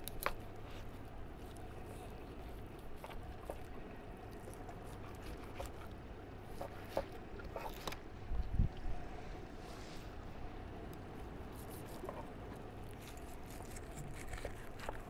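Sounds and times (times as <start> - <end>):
low steady rumble: 0.0 - 15.0
knife scraping fish flesh: 11.5 - 15.0.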